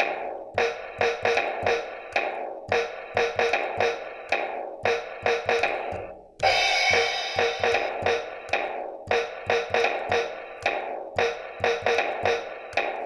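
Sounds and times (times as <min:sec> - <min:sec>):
electronic drum beat: 0:00.0 - 0:13.0
cymbal crash: 0:06.4 - 0:08.0.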